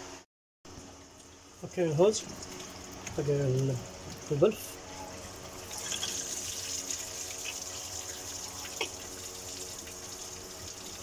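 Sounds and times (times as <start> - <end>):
liquid running from a hose: 5.2 - 11.0.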